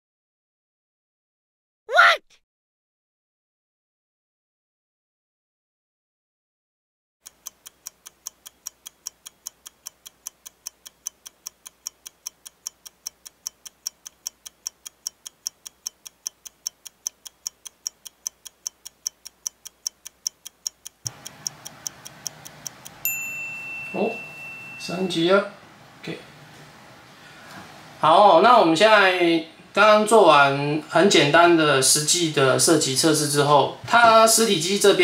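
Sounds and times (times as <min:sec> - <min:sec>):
clock ticking: 0:07.2 - 0:23.3.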